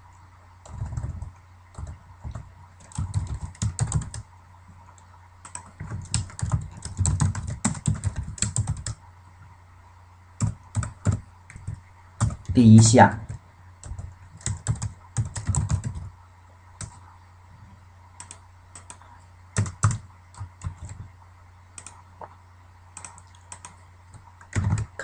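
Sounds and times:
faint low hum: 0.0 - 25.0
typing on computer keyboard: 0.6 - 4.2, 5.4 - 9.0, 10.4 - 12.5, 13.3 - 16.1, 18.2 - 19.0, 19.6 - 21.0, 21.8 - 22.0, 23.0 - 25.0.

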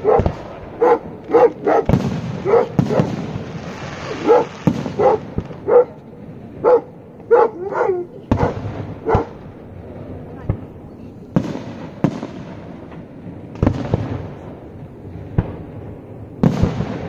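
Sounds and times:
dog barking: 0.0 - 3.1, 4.2 - 6.0, 6.6 - 9.4
fireworks bursting: 0.0 - 7.3, 8.2 - 17.0.

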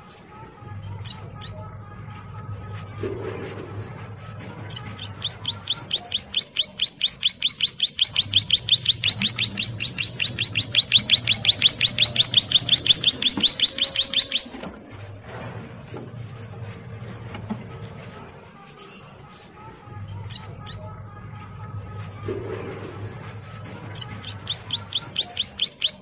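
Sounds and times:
bird trilling: 4.8 - 14.7, 24.0 - 26.0.

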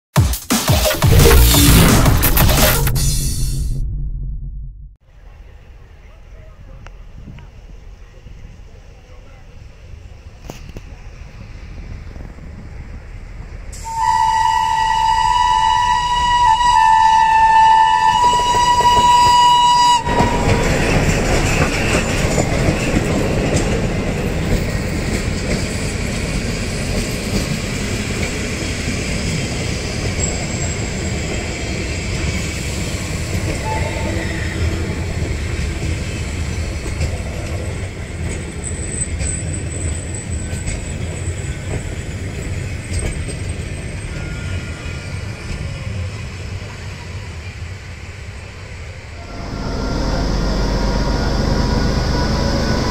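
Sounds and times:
train rumble and wheel clatter: 5.2 - 52.9
locomotive horn blaring: 13.8 - 20.9, 33.6 - 34.5, 49.2 - 52.9.

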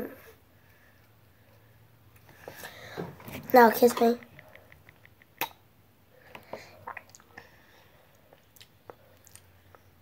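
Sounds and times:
mouth clicks and smacks: 4.2 - 5.7, 6.3 - 7.4, 8.1 - 9.9.

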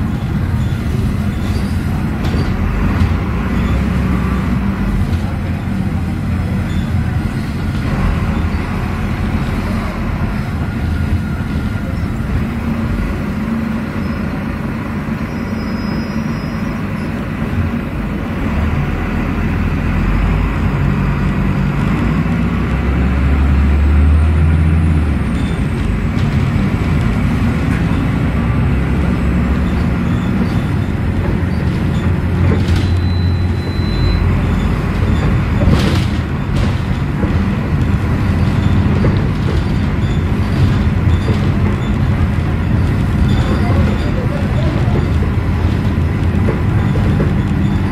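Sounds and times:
bus diesel engine drone: 0.0 - 47.9
road noise: 0.0 - 47.9
interior rattles: 25.4 - 47.9.

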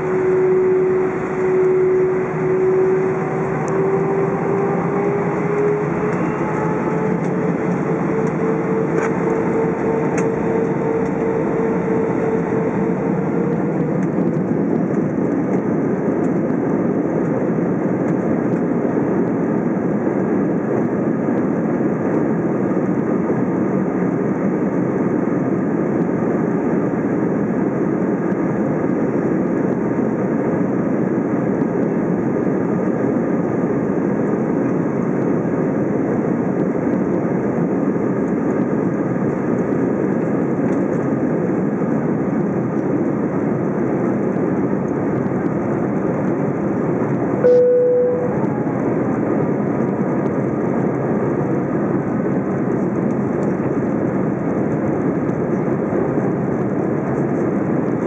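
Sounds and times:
hum: 0.0 - 20.8, 42.6 - 53.4
jet engines running: 0.0 - 58.0.

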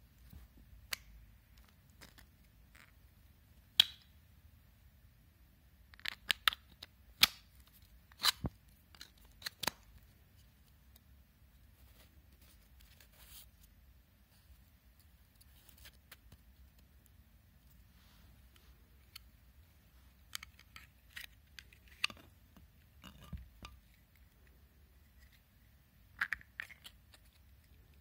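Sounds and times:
plastic parts clicking and snapping: 5.9 - 10.0, 20.2 - 22.3
faint handling rustles: 17.5 - 22.0.

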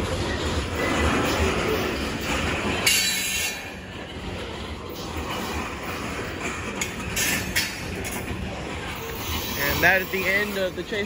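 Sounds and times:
freight train wheels rumbling on rail: 0.0 - 11.0.

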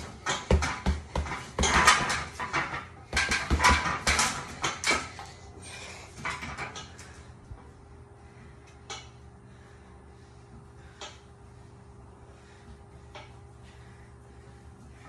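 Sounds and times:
punches thudding into heavy bag: 0.0 - 2.3.

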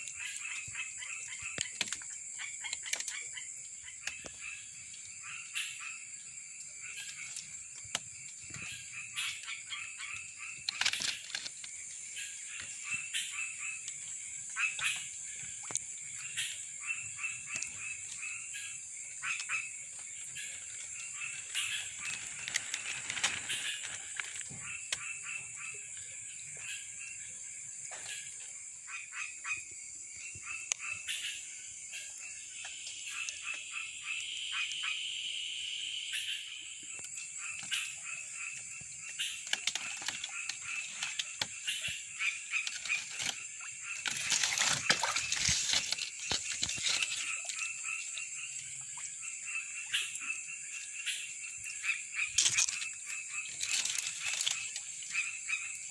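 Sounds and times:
frogs calling: 0.0 - 55.9.

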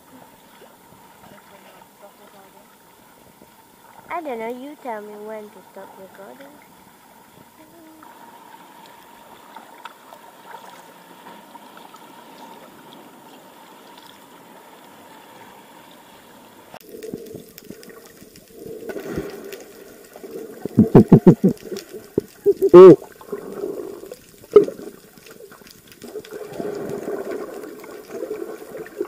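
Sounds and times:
water lapping and trickling: 0.0 - 29.0
person plunging into water: 16.8 - 25.4
bubbling underwater noise: 16.8 - 29.0.

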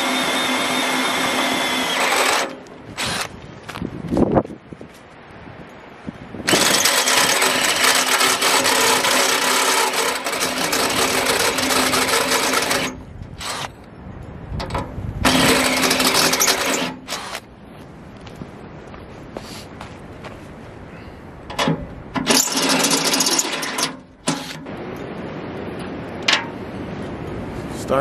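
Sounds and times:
drill cutting through steel: 0.0 - 3.3, 6.5 - 13.8, 15.2 - 17.4, 22.2 - 24.6.

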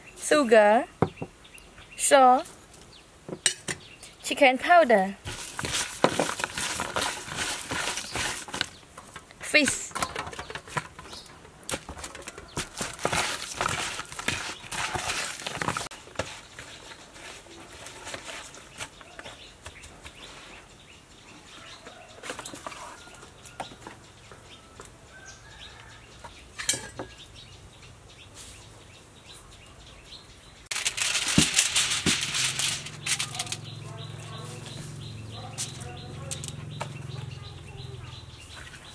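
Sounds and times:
aluminium foil crinkling: 5.2 - 9.2, 11.7 - 19.3, 30.7 - 33.8.

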